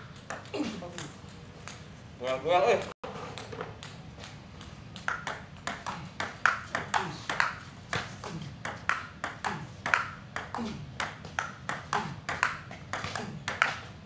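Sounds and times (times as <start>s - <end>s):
ball clicking off bats: 0.0s - 1.9s, 3.3s - 13.9s
ball bouncing on table: 3.4s - 13.9s.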